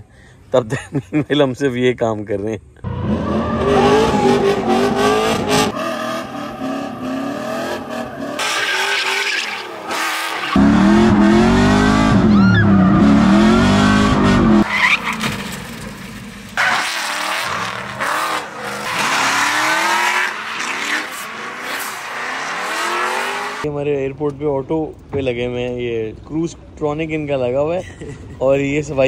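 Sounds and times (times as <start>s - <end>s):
car engine revving: 2.8s - 16.0s, 16.6s - 23.7s
tyre squeal: 12.2s - 13.1s.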